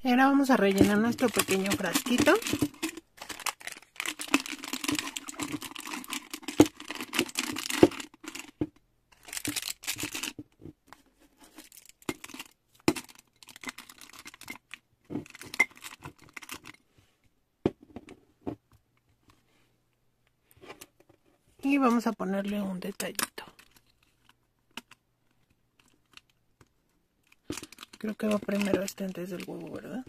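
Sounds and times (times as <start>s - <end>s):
plastic wrappers crinkling: 0.4s - 10.4s, 11.5s - 16.8s, 27.3s - 30.0s.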